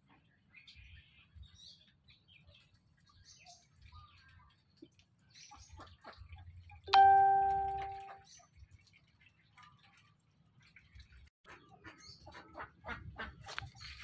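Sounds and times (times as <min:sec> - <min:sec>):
loud bell-like chime: 0:06.9 - 0:08.2.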